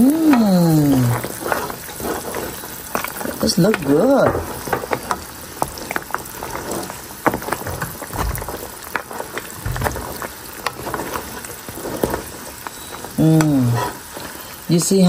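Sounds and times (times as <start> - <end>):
liquid bubbling and popping: 0.0 - 14.7
wooden spatula stirring meat: 0.0 - 15.0
soft bumps from pan: 0.3 - 15.0.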